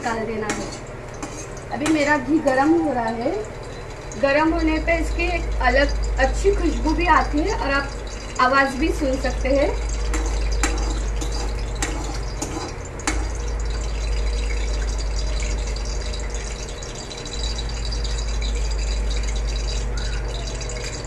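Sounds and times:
ghee sizzling in pan: 0.0s - 21.0s
steel spoon clicking on pan: 10.0s - 13.8s.

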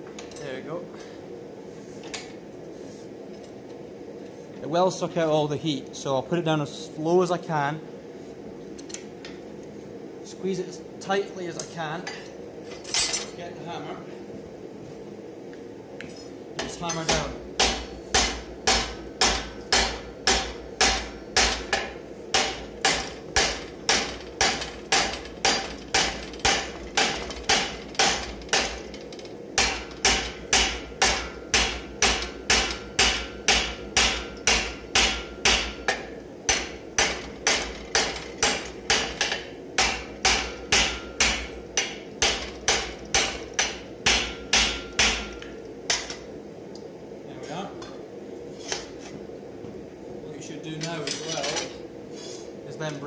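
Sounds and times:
hammer striking hot metal: 16.6s - 46.2s.

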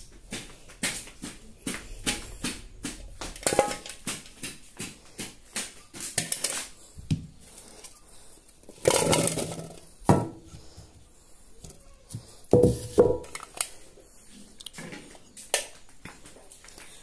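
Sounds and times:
containers and pot clattering: 3.4s - 4.3s, 8.7s - 10.5s, 12.5s - 13.7s.

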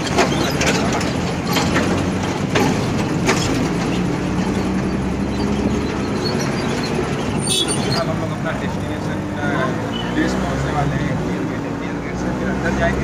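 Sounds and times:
sharp clatters: 0.0s - 8.2s
auto-rickshaw engine hum: 0.0s - 13.0s
road noise: 0.0s - 13.0s.

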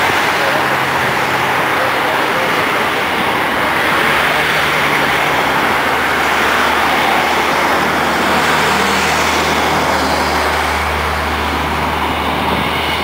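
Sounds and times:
jet engines at taxi power: 0.0s - 13.0s
low hum: 0.0s - 13.0s.

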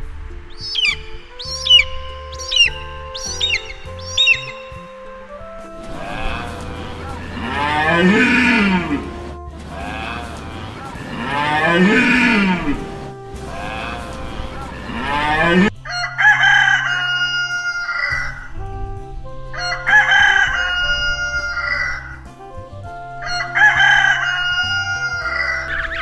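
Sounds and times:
soft background music: 0.0s - 26.0s
drawn-out animal calls: 0.3s - 18.6s, 19.2s - 26.0s
rooster crowing: 5.8s - 18.4s, 19.6s - 22.1s, 23.2s - 26.0s.

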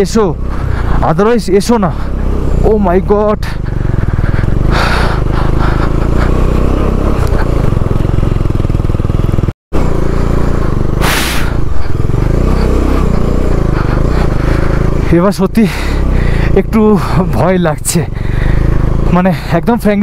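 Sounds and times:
motorcycle engine running: 0.0s - 20.0s
short bursts of hiss: 11.0s - 11.6s.

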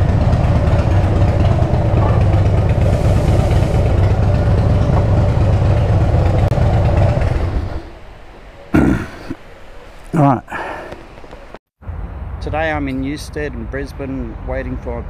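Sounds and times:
motorcycle engine idling: 0.0s - 8.4s.

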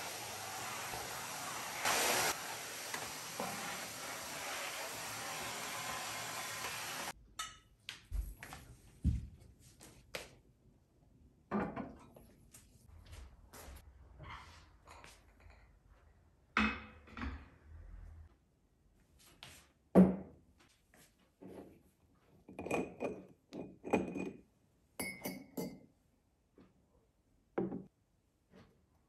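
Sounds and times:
vacuum cleaner running: 0.0s - 7.2s.

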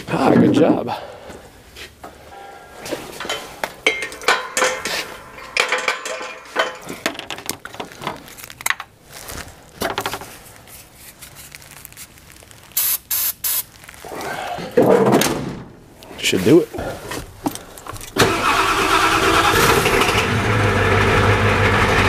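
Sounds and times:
aerosol spray hissing: 12.8s - 13.7s
spray can clattering: 12.8s - 13.7s.

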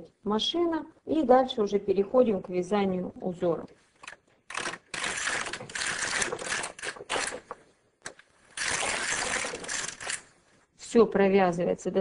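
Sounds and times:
knitting machine carriage clattering: 4.0s - 7.5s.

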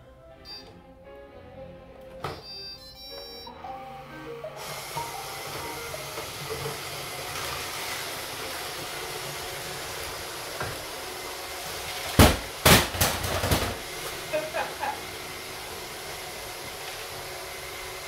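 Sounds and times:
robot vacuums whirring: 0.3s - 18.0s
loud knocks and clatter: 12.1s - 13.9s.

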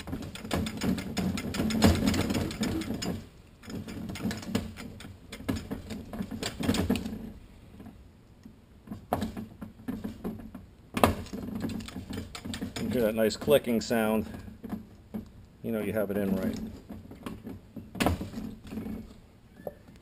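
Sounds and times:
metal rattling and clicking: 0.0s - 8.0s, 8.8s - 15.4s.

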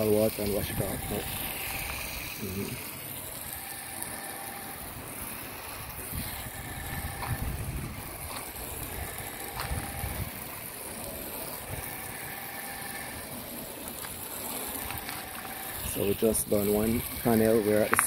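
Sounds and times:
hose spray hissing on glass: 0.0s - 18.0s
low rumbles: 5.2s - 10.3s.

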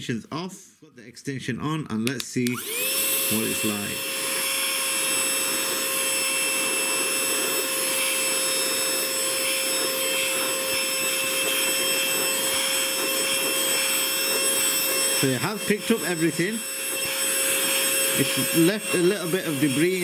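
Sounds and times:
handheld vacuum whine: 2.4s - 20.0s.

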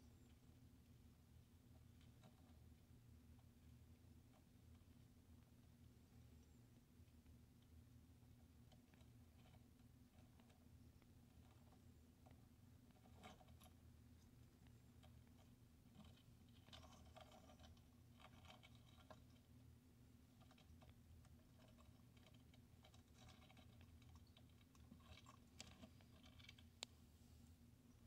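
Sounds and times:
low steady hum: 0.0s - 28.0s
crab clicking and scratching on gravel: 8.4s - 19.5s, 20.3s - 26.9s.

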